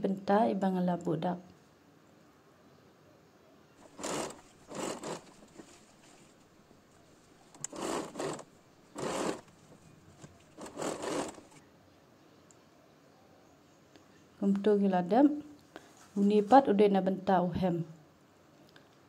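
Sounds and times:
sewing machine stitching: 3.8s - 5.7s, 7.6s - 9.5s, 10.2s - 11.6s.

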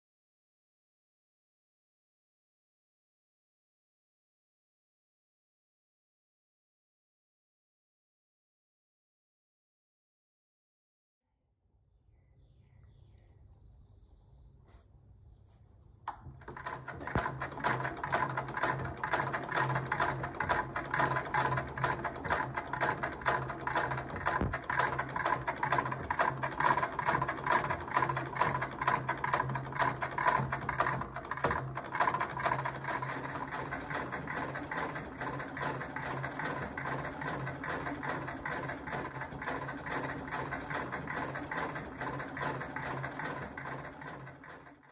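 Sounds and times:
sewing machine clatter: 16.2s - 44.9s.

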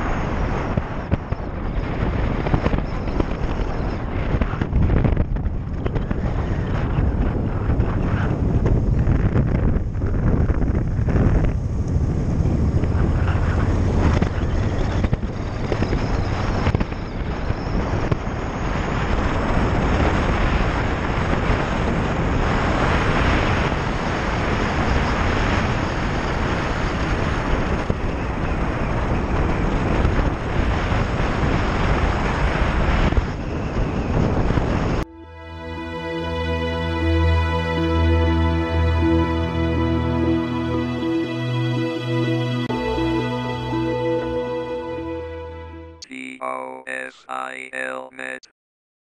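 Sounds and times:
wind rushing over microphone: 0.0s - 35.1s.

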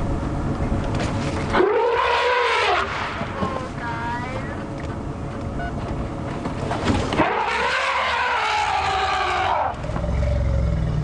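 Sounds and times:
low rumble: 0.0s - 11.0s
elephant trumpeting: 1.5s - 3.2s, 7.1s - 10.8s.

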